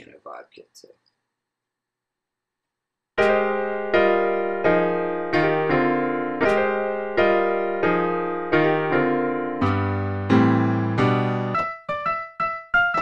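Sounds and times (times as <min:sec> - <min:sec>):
piano notes: 0:03.2 - 0:13.0.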